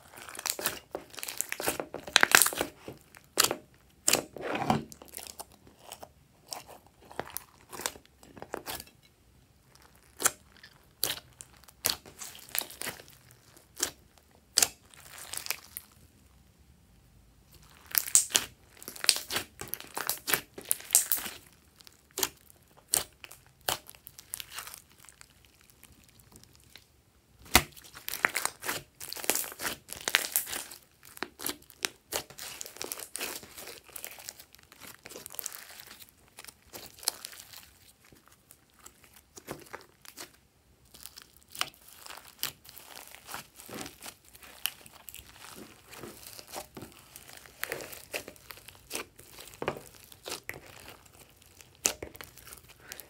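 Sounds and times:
slime clicking and popping: 17.9 - 21.4.

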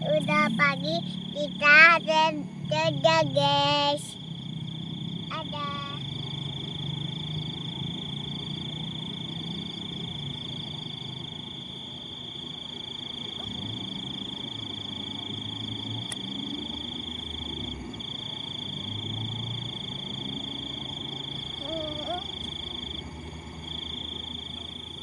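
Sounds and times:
frogs croaking: 0.0 - 25.0
high-pitched insect whine: 0.0 - 25.0.

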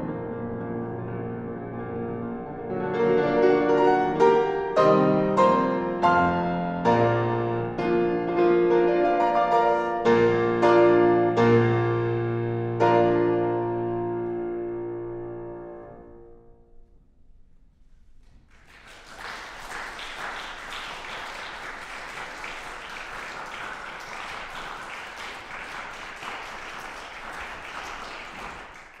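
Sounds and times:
audience applause: 18.5 - 29.0.

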